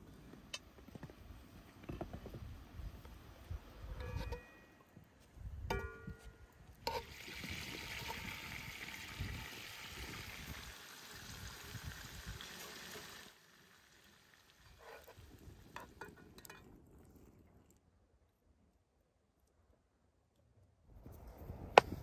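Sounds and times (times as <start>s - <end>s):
butter sizzling in a wok: 6.9s - 16.0s.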